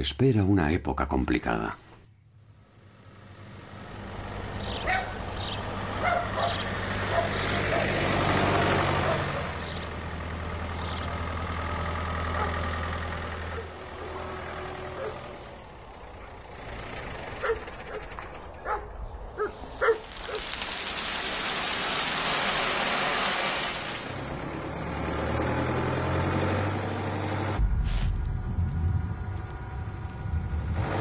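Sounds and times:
dog barking: 0:04.8 - 0:05.2, 0:06.0 - 0:08.0, 0:12.3 - 0:12.6, 0:15.0 - 0:15.2, 0:17.4 - 0:20.5
grain pouring into hopper: 0:19.5 - 0:24.6.

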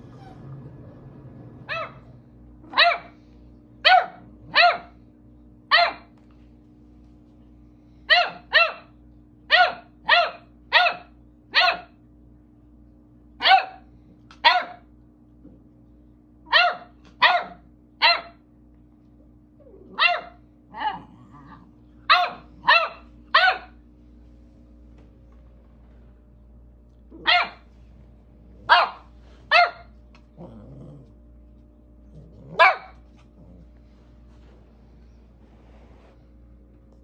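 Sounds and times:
puppy barking: 0:01.6 - 0:03.2, 0:03.8 - 0:05.0, 0:05.7 - 0:06.2, 0:08.1 - 0:12.0, 0:13.4 - 0:14.9, 0:16.5 - 0:18.4, 0:19.8 - 0:23.8, 0:27.1 - 0:27.7, 0:28.6 - 0:30.0, 0:32.4 - 0:33.2.

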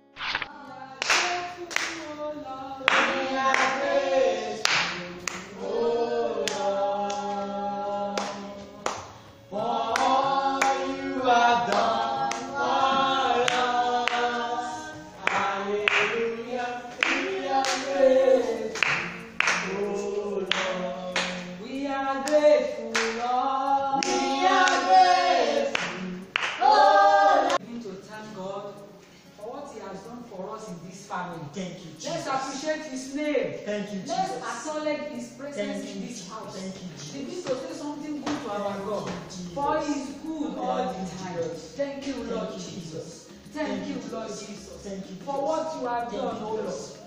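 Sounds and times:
hand clapping: 0:00.2 - 0:02.2, 0:02.9 - 0:03.8, 0:04.6 - 0:05.6, 0:06.4 - 0:07.3, 0:08.2 - 0:10.8, 0:11.7 - 0:12.6, 0:13.4 - 0:14.4, 0:15.2 - 0:21.5, 0:22.2 - 0:23.3, 0:24.0 - 0:26.8, 0:36.4 - 0:39.8
group singing: 0:00.2 - 0:27.6, 0:34.0 - 0:47.0.

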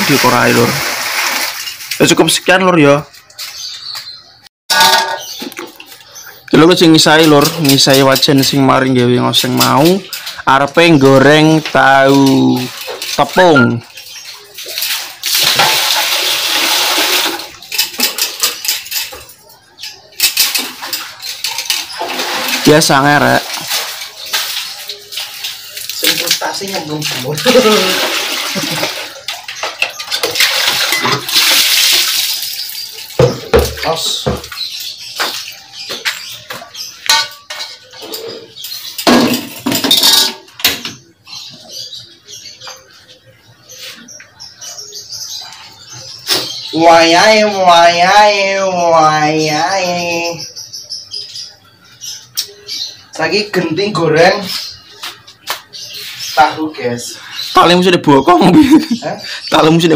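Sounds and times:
water gushing into wok: 0:00.0 - 0:02.0, 0:14.8 - 0:17.6, 0:27.7 - 0:29.6
metal wok and utensils clanking: 0:04.7 - 0:05.8, 0:11.6 - 0:33.9, 0:36.8 - 0:41.0
scrubbing pan: 0:12.1 - 0:19.2, 0:20.2 - 0:34.5.

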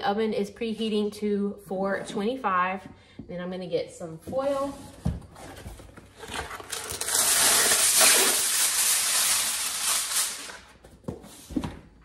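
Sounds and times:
aluminium foil crinkling: 0:06.2 - 0:10.8.

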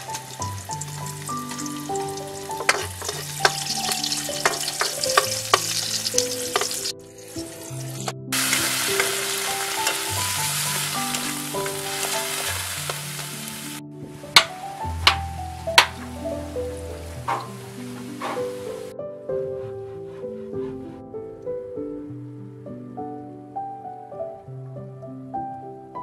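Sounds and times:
wooden spatula scraping a wok: 0:00.0 - 0:13.4, 0:17.2 - 0:18.9
garlic and onion sizzling in oil: 0:00.0 - 0:18.9.

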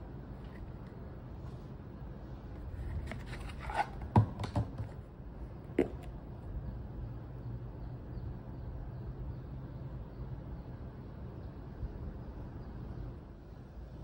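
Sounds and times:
steady low hum: 0:00.0 - 0:14.0
box rustling: 0:02.8 - 0:04.1
box clicks and knocks: 0:03.1 - 0:05.0.

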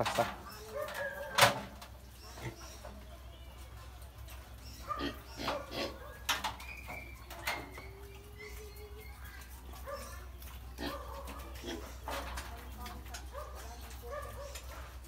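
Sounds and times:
piglets squealing and grunting: 0:00.3 - 0:03.0, 0:04.6 - 0:12.2.

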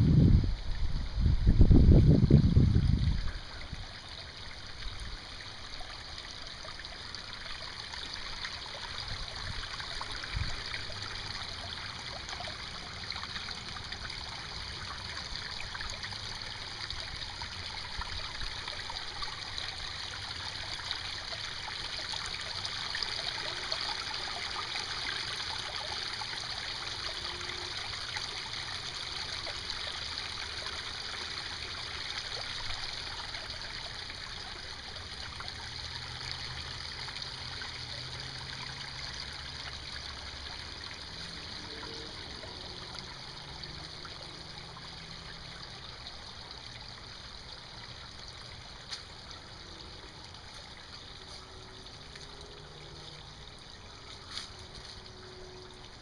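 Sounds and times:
water trickling and splashing over rocks: 0:00.0 - 0:56.0.

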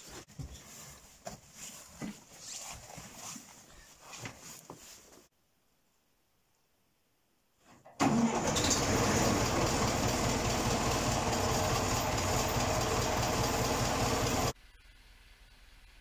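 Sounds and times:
tractor diesel engine running: 0:08.0 - 0:14.6.

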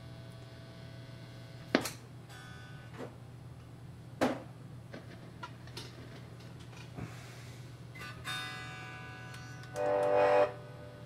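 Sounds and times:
low mains hum: 0:00.0 - 0:11.0
electric guitar notes: 0:08.0 - 0:11.0.

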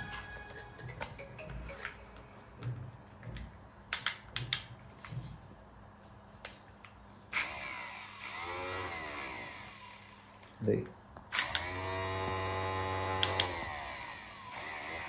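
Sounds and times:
electric motor whine: 0:07.4 - 0:10.4, 0:11.4 - 0:15.0.

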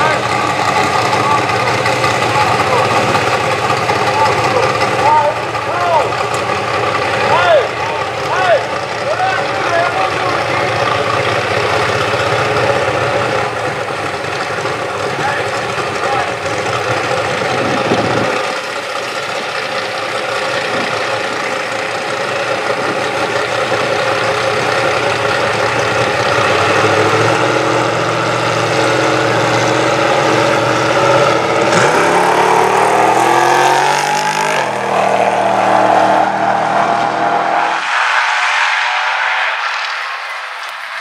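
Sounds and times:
truck engine revving and accelerating: 0:00.0 - 0:41.0.

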